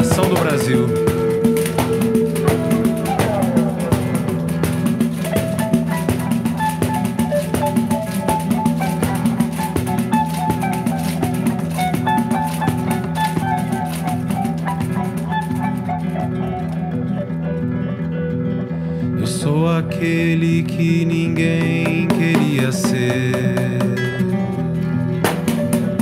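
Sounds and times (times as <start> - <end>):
frame drum with jingles: 0.0 - 14.8
classical guitar: 0.0 - 26.0
electric guitar: 0.0 - 26.0.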